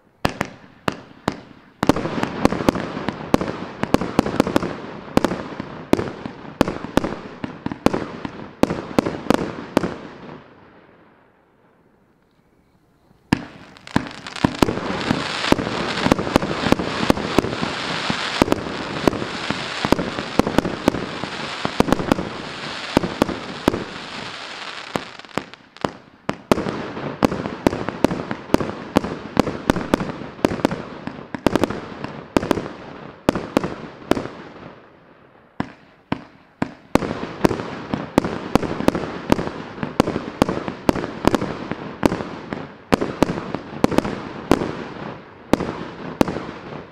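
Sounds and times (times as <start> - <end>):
fireworks bangs and pops: 0.0 - 10.5, 13.0 - 34.9, 35.6 - 46.9.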